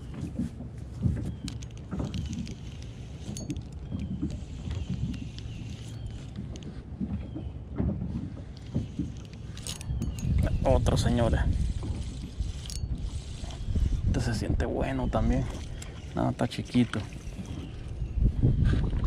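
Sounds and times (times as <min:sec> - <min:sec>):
wind and water rumble: 0:00.0 - 0:19.0
fishing reel clicks and knocks: 0:01.3 - 0:06.7, 0:08.9 - 0:10.4, 0:11.3 - 0:13.8.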